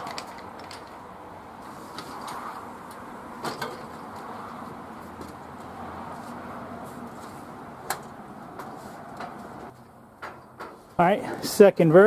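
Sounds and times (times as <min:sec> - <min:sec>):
steady background noise: 0:00.0 - 0:12.0.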